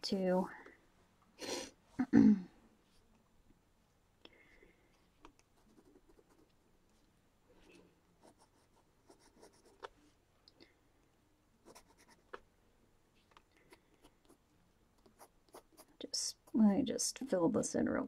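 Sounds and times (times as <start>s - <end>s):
pencil sketching on paper: 5.6s - 6.5s, 8.2s - 9.9s, 11.6s - 12.4s.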